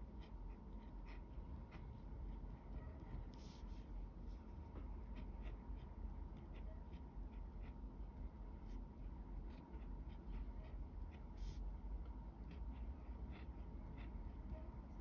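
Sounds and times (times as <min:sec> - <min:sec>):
faint low hum: 0:00.0 - 0:15.0
pen scratching on paper: 0:00.1 - 0:03.9, 0:04.7 - 0:07.8, 0:09.4 - 0:11.6, 0:12.3 - 0:15.0.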